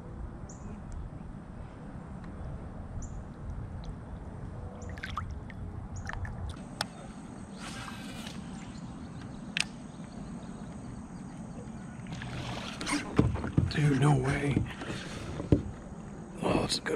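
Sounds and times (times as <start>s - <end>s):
sharp click: 9.5s - 9.8s.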